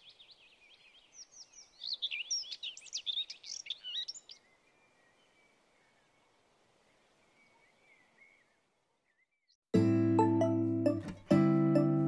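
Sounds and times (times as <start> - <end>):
small birds chirping: 0.0 - 9.6.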